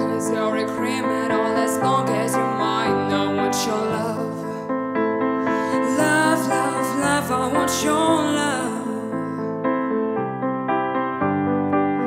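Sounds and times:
girl singing into a microphone: 0:00.0 - 0:04.6, 0:05.6 - 0:09.3
piano accompaniment: 0:00.0 - 0:12.0.

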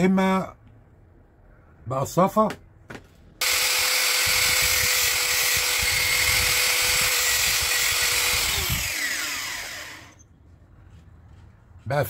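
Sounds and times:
angle grinder whining: 0:03.4 - 0:10.3.

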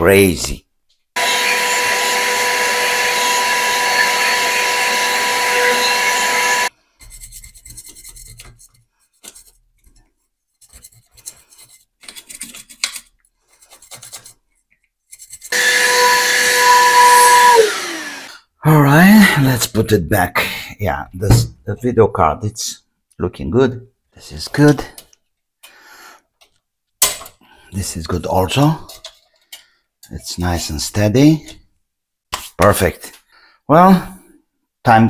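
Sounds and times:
electric blower whining: 0:01.2 - 0:06.7, 0:15.5 - 0:18.4
rubbing and handling plastic fan: 0:06.9 - 0:15.5.

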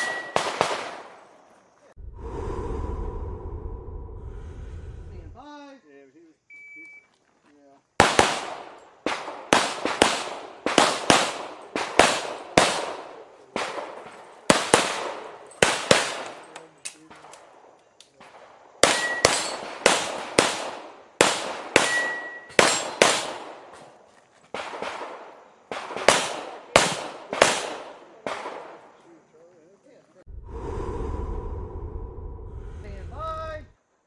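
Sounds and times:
rapid pistol fire: 0:00.3 - 0:01.2, 0:08.0 - 0:16.4, 0:18.3 - 0:23.7, 0:24.6 - 0:28.8.

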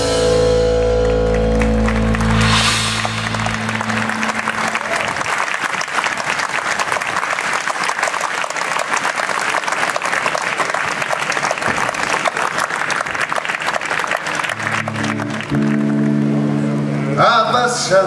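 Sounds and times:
band playing held notes: 0:00.0 - 0:06.7, 0:14.3 - 0:18.0
audience applauding: 0:00.9 - 0:17.2.

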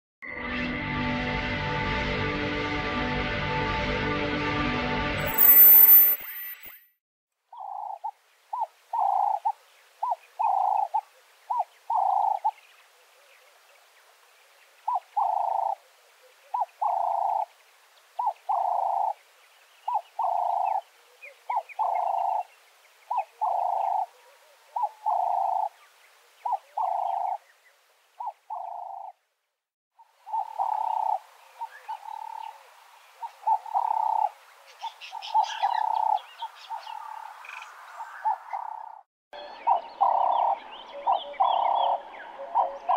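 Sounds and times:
small birds chirping: 0:07.5 - 0:24.1, 0:24.7 - 0:29.2, 0:30.0 - 0:42.9
doves cooing: 0:09.0 - 0:12.5, 0:14.9 - 0:15.8, 0:16.6 - 0:17.5, 0:23.1 - 0:25.8, 0:26.5 - 0:27.4, 0:30.3 - 0:34.4, 0:35.3 - 0:36.3, 0:39.7 - 0:42.9.

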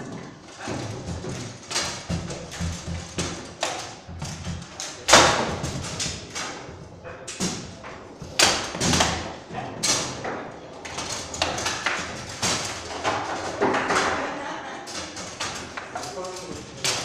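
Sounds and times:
foosball ball knocks and clacks: 0:00.0 - 0:17.0
rods knocking in bearings: 0:00.6 - 0:06.5.

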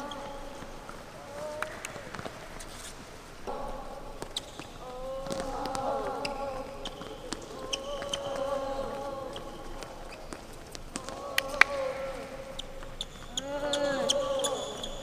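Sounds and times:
balls being hit and bouncing: 0:00.0 - 0:14.9
players calling out: 0:03.4 - 0:15.0
sneaker squeaks on floor: 0:06.2 - 0:08.4.

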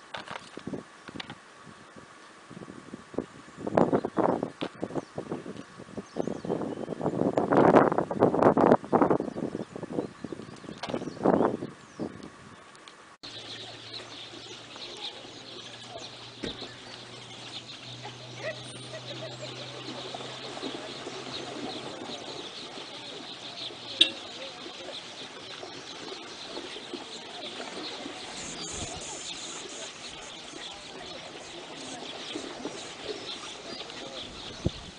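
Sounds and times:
birds chattering: 0:13.2 - 0:34.9.

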